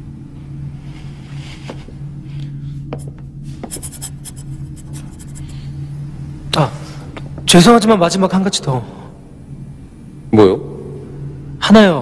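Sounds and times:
pen scratching on paper: 0:03.7 - 0:05.5.

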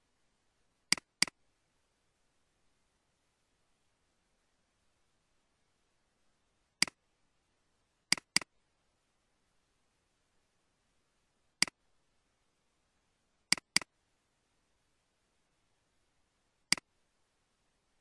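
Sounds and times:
computer mouse clicking: 0:00.9 - 0:01.4, 0:08.1 - 0:08.5, 0:13.5 - 0:13.9, 0:16.7 - 0:16.9.

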